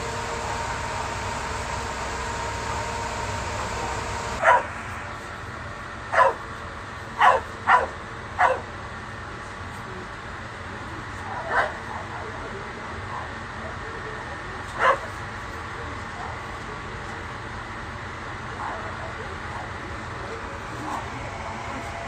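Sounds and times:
mechanical hum: 0.0 - 22.0
dog barking: 4.4 - 4.7, 6.1 - 6.4, 7.2 - 8.7, 11.5 - 11.8, 14.8 - 15.1.

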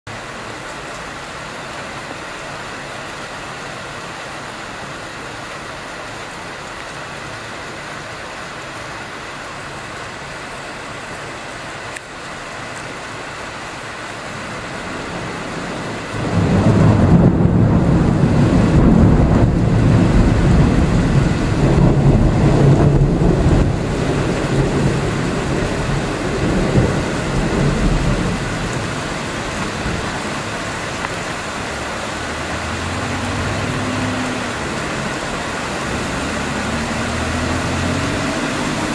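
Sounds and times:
thunder rumbling: 14.3 - 38.9.

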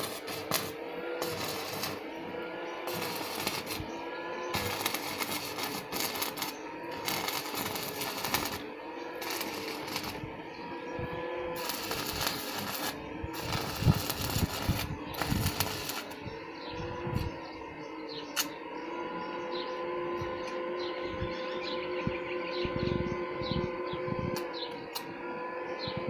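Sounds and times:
electric arc crackling and sizzling: 0.0 - 10.3, 11.6 - 16.2.

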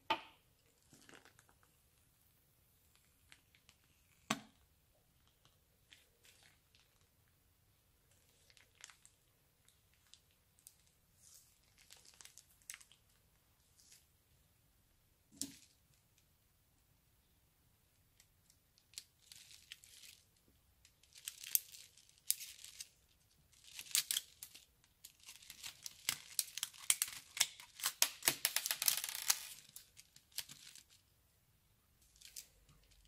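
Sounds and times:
plastic bag crinkling: 8.1 - 13.2, 18.8 - 20.3, 20.9 - 31.1, 32.0 - 33.0.

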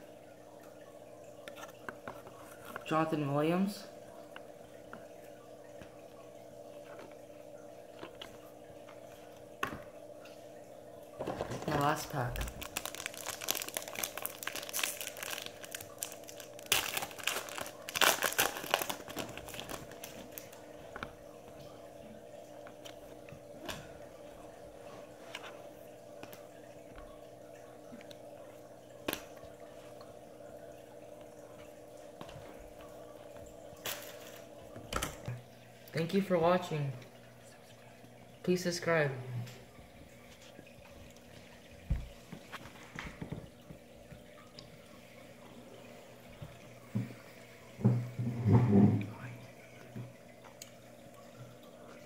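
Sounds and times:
low room hum: 0.0 - 52.0.

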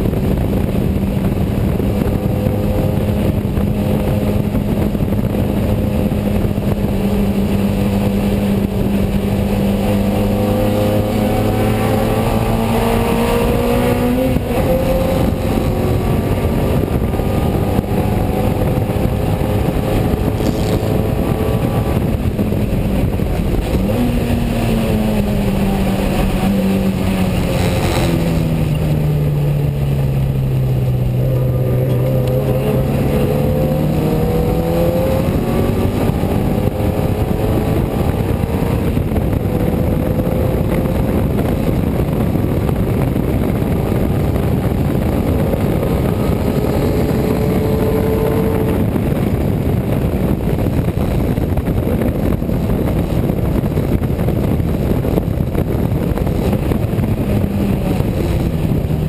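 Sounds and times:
car engine running hard: 0.0 - 59.0
road and wind noise: 0.0 - 59.0.

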